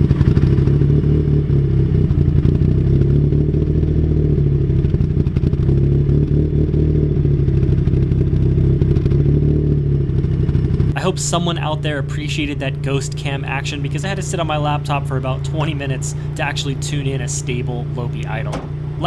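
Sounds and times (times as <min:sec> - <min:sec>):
car engine idling with lopey idle: 0:09.9 - 0:19.0.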